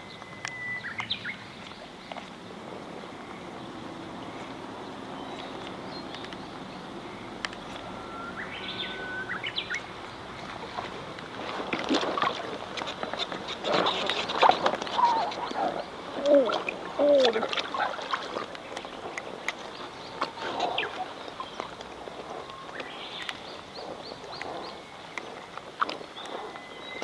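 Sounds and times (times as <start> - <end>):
whistled bird call: 0.0 - 1.3, 7.7 - 9.9, 26.2 - 27.0
light rain on pond water: 0.0 - 27.0
water splashing against a boat: 0.0 - 27.0.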